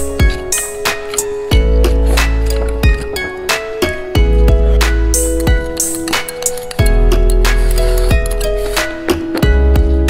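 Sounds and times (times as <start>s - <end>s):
held plucked notes: 0.0s - 10.0s
deep bass beat: 1.5s - 3.0s, 4.2s - 5.7s, 9.4s - 10.0s.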